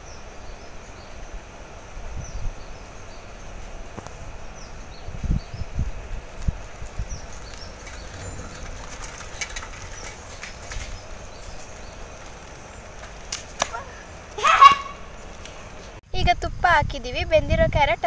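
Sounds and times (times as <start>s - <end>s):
steady low rumble: 3.7s - 13.3s.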